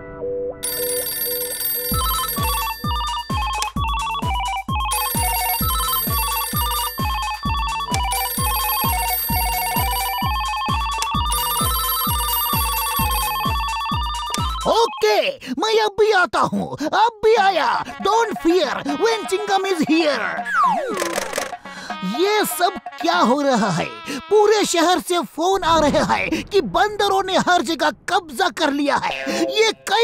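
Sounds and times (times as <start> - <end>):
telephone bells ringing: 0.6 - 14.8
background music with thumping beat: 1.9 - 14.7, 18.0 - 23.8.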